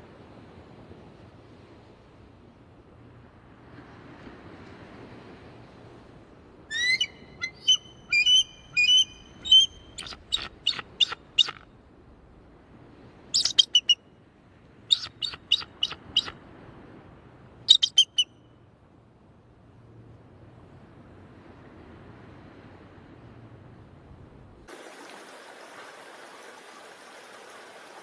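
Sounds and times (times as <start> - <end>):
eagle calling in piping notes: 6.7 - 11.6, 13.4 - 14.0, 14.9 - 16.3, 17.7 - 18.3.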